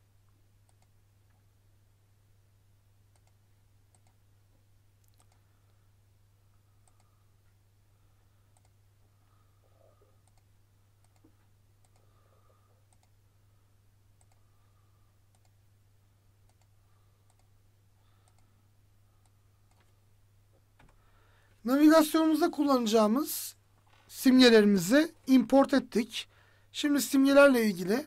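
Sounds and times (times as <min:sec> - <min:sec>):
low steady hum: 0:00.0 - 0:28.0
faint computer mouse clicks: 0:00.7 - 0:00.9, 0:03.1 - 0:04.2, 0:05.0 - 0:05.5, 0:06.8 - 0:07.1, 0:08.5 - 0:08.8, 0:10.2 - 0:12.1, 0:12.9 - 0:13.2, 0:14.2 - 0:14.4, 0:15.3 - 0:15.6, 0:16.5 - 0:16.7, 0:17.3 - 0:17.5, 0:18.2 - 0:18.5.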